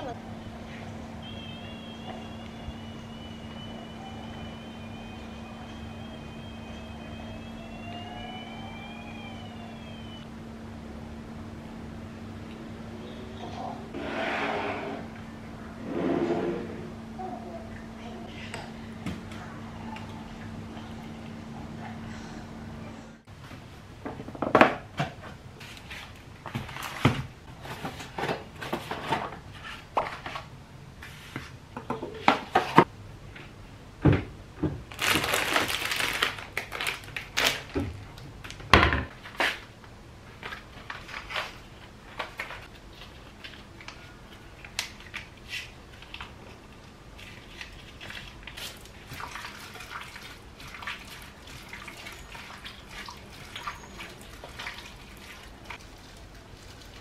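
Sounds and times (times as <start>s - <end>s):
wet squishing of meat mixed by hand: 47.2s - 57.0s.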